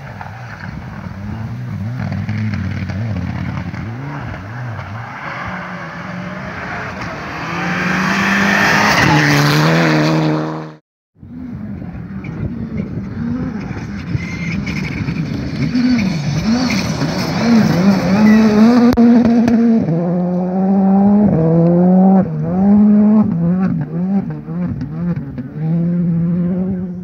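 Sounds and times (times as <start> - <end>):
distant rally car engine: 0.0 - 27.0
rally car engine revving: 0.1 - 27.0.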